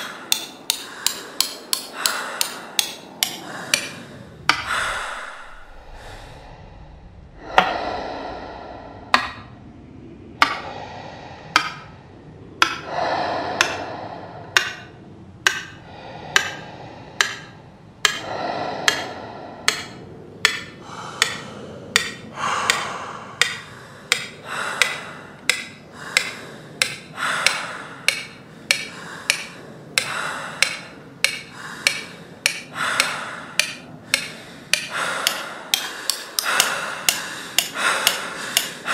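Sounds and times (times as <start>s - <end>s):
sharp percussive knocks: 11.5s - 11.9s, 14.5s - 16.6s, 17.2s - 19.1s, 19.7s - 38.9s.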